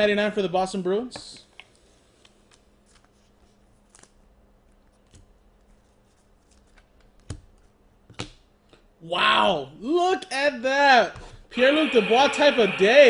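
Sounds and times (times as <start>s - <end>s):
trading cards being flipped: 1.6s - 8.4s.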